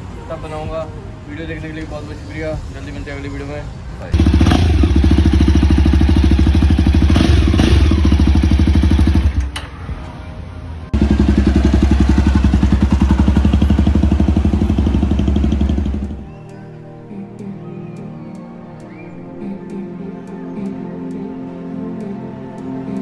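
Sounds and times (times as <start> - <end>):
single-cylinder motorcycle engine running: 4.2 - 9.5, 11.0 - 16.2.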